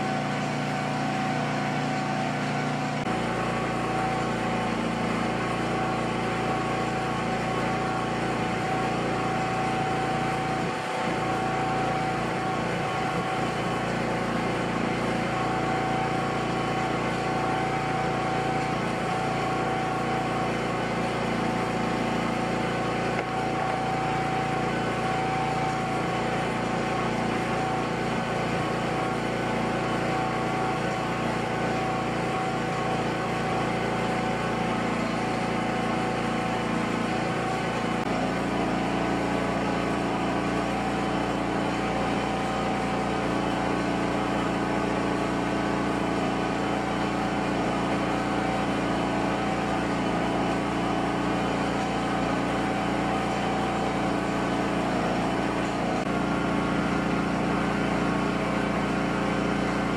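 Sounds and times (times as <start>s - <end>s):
motor humming: 0.0s - 59.9s.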